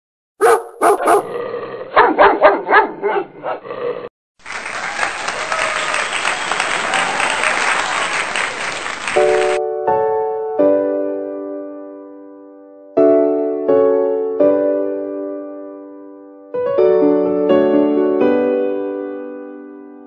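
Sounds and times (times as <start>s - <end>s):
dog barking: 0.4s - 3.6s
crowd applauding: 4.4s - 9.6s.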